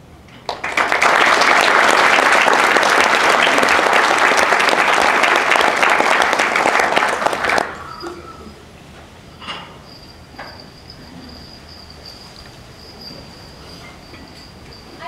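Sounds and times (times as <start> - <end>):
audience applauding: 0.5 - 8.1.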